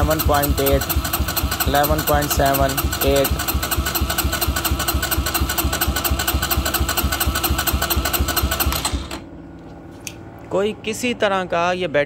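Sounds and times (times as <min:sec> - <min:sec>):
motorcycle starter cranking: 0:00.0 - 0:09.3.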